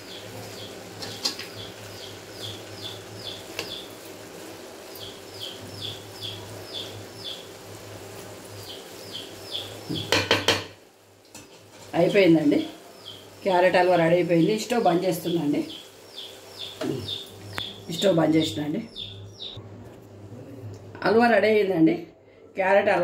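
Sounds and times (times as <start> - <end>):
bird chirping: 0.0 - 4.0, 4.9 - 7.5, 8.6 - 10.2, 12.5 - 13.4, 14.3 - 19.6
spatula clanking against pan: 10.0 - 11.9
metal spatula stirring in pan: 11.3 - 12.0.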